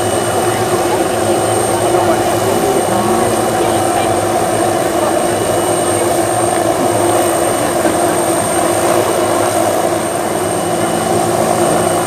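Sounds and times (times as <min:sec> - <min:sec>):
helicopter engine idling: 0:00.0 - 0:12.0
high constant whine: 0:00.0 - 0:12.0.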